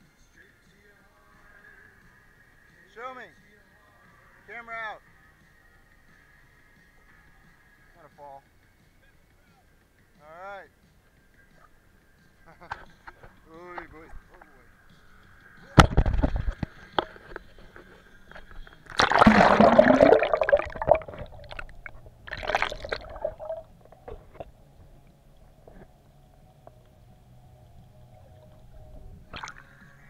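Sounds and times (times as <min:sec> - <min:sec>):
underwater hum: 0:18.7 - 0:30.0
water splashing and gurgling: 0:18.8 - 0:24.5, 0:29.3 - 0:29.8.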